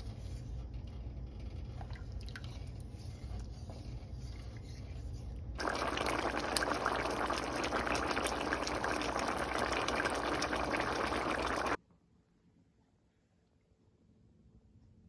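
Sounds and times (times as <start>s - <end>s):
curry boiling with pops: 5.6s - 11.8s.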